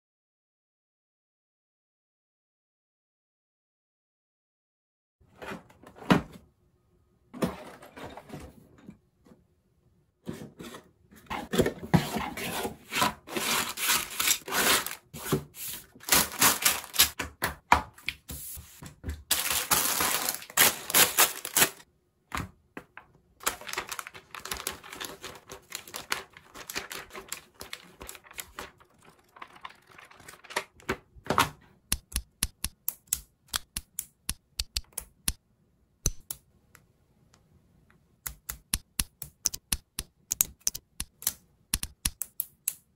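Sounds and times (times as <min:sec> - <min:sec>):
plastic bag rustling: 0:13.3 - 0:17.2, 0:19.3 - 0:21.8, 0:23.4 - 0:30.8.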